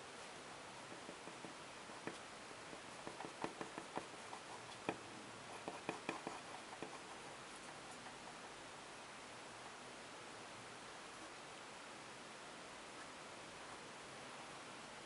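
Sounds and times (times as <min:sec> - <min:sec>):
faint steady hiss: 0:00.0 - 0:15.0
pen scratching on paper: 0:00.9 - 0:08.6.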